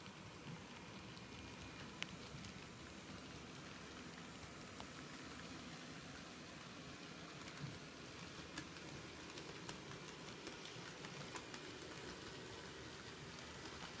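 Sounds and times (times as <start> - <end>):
model train whirring: 0.0 - 14.0
light track clicks: 6.6 - 14.0.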